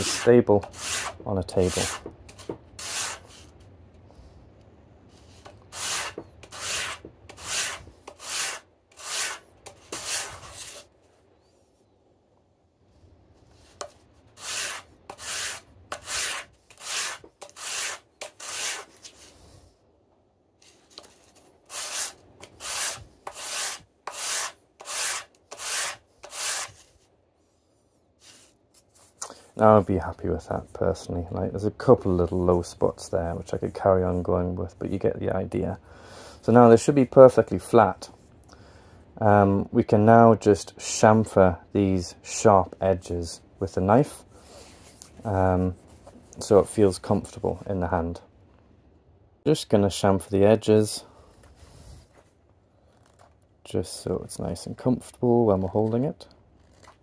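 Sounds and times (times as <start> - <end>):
wood scraping on sandpaper: 0.0 - 3.6, 5.1 - 10.9, 13.4 - 19.6, 20.6 - 27.1, 27.8 - 29.8.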